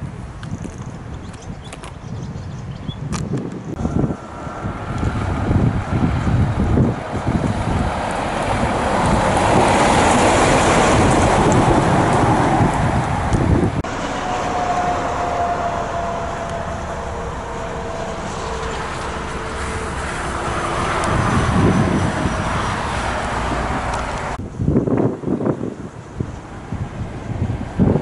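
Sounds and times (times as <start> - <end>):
motorway traffic: 0.0 - 28.0
lorry driving past: 3.7 - 24.4
falling whine: 3.8 - 24.4.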